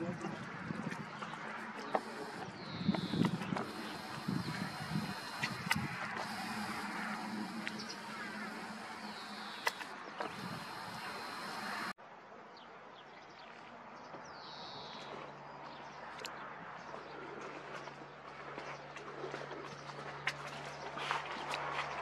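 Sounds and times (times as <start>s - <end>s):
steady low hum: 1.8s - 12.0s.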